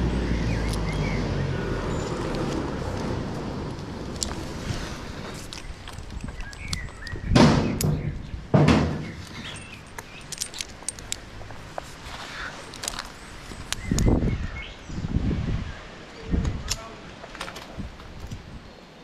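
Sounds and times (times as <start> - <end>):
rope rubbing and rustling: 1.8 - 7.2, 9.0 - 14.2
carabiners clinking: 9.0 - 11.8.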